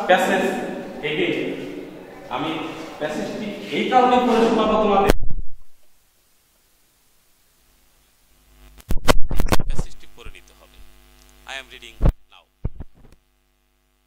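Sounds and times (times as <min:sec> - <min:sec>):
electrical mains hum: 0:00.0 - 0:14.0
microphone line crackling: 0:04.1 - 0:05.8, 0:07.9 - 0:13.3.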